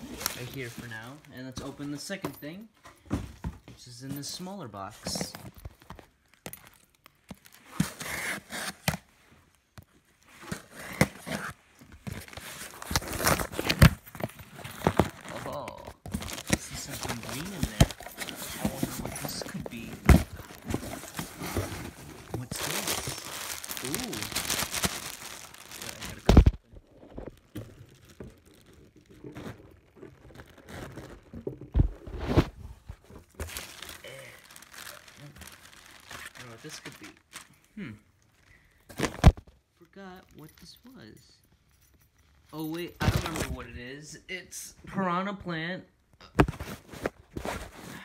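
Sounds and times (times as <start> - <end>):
cardboard box scraping and tearing: 7.7 - 8.9, 16.2 - 24.8
plastic wrapping crinkling: 12.0 - 32.4, 33.2 - 39.6.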